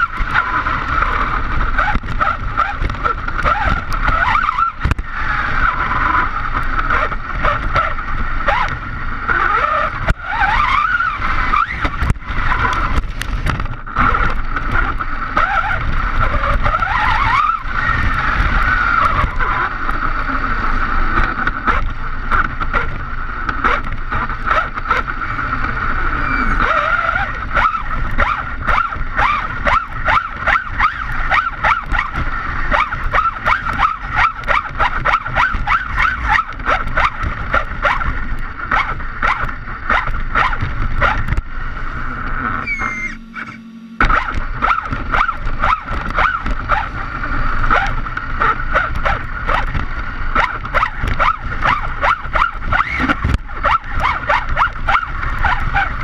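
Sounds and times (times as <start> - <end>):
grit and wind crackle: 0.0 - 56.0
tyres on rough asphalt: 0.0 - 56.0
electric motor whine: 37.8 - 49.6.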